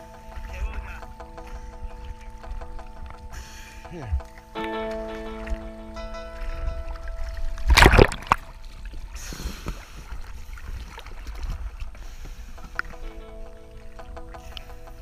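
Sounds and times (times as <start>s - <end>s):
background music: 0.0s - 9.0s, 12.6s - 15.0s
water sloshing against boat: 0.0s - 15.0s
loud water splash: 6.4s - 8.6s.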